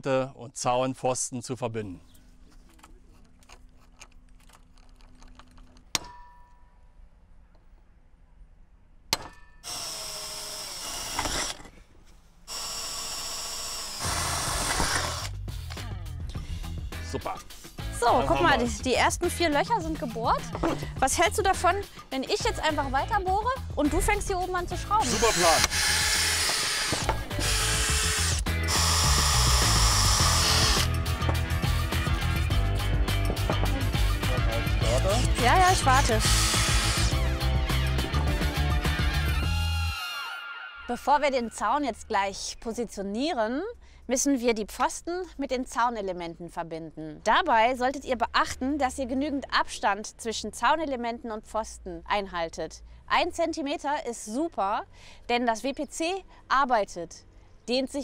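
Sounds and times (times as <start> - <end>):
cordless drill drilling into metal: 9.6 - 11.8, 12.5 - 15.3, 25.0 - 31.0, 36.0 - 37.3
background music with bass: 14.2 - 26.4, 27.0 - 40.0.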